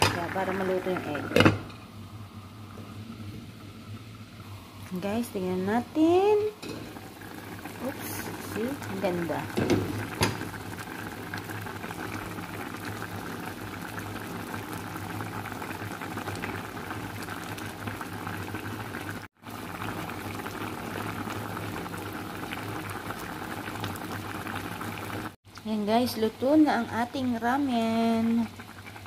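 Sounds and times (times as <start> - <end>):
broth bubbling in a pan: 0.0 - 29.0.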